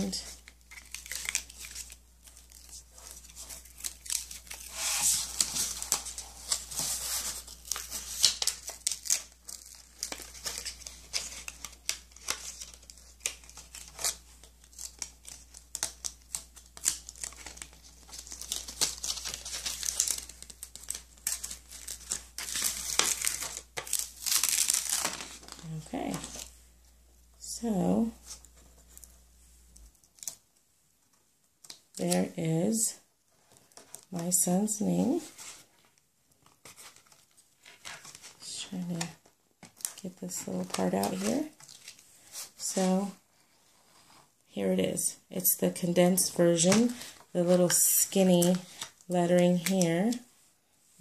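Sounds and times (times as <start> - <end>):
paper crinkling and tearing: 0.0 - 26.5, 36.4 - 42.9.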